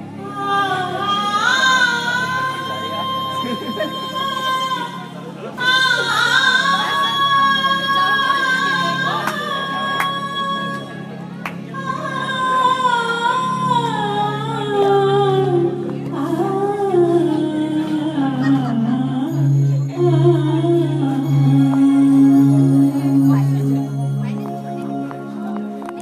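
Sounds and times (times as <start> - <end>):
sung melody: 0.0 - 26.0.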